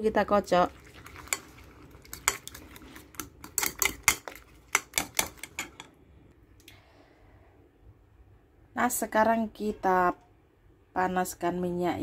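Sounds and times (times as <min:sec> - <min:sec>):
spoon beating eggs in a bowl: 0:00.7 - 0:06.0.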